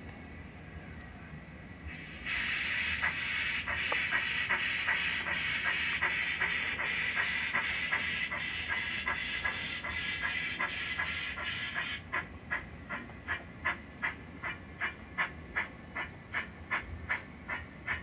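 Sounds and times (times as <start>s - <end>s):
steam hiss: 1.9s - 12.0s
steam locomotive chuffs: 1.9s - 18.0s.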